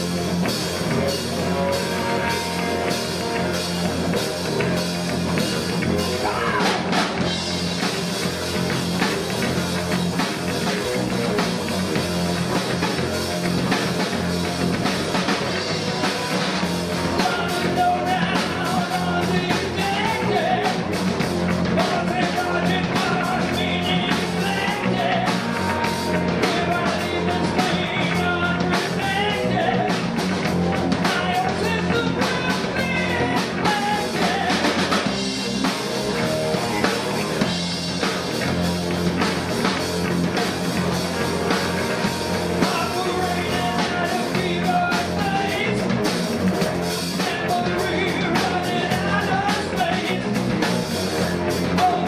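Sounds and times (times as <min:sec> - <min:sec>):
live rock band playing: 0:00.0 - 0:52.0
person singing: 0:05.9 - 0:07.0, 0:17.1 - 0:20.9, 0:21.8 - 0:30.0, 0:31.0 - 0:35.0, 0:41.6 - 0:46.0, 0:47.1 - 0:50.4, 0:51.6 - 0:52.0.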